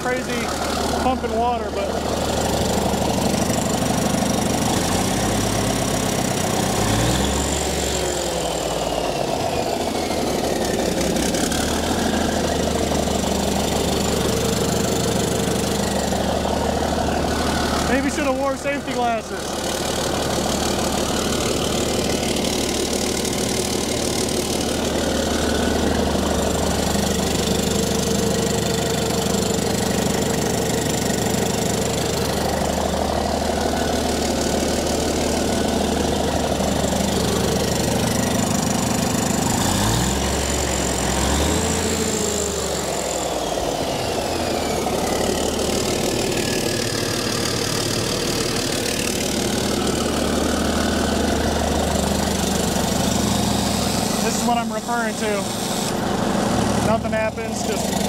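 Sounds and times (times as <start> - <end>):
diesel engine idling: 0.0 - 58.0.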